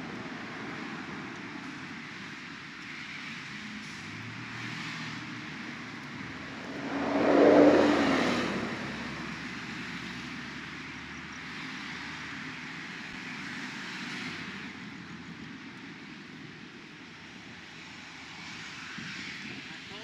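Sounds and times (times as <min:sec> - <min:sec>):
vehicle passing by: 0:05.6 - 0:10.0.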